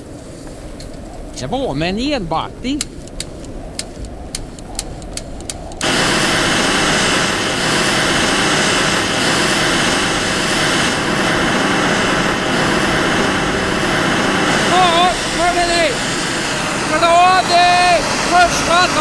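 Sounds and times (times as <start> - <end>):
hot-air gun fan hissing: 2.6 - 19.0
light clicks: 2.8 - 5.9.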